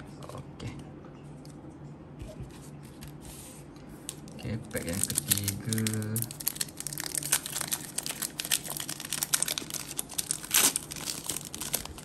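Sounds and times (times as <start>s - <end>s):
foil pack crinkling: 4.2s - 12.0s
foil pack ripping open: 4.8s - 12.0s.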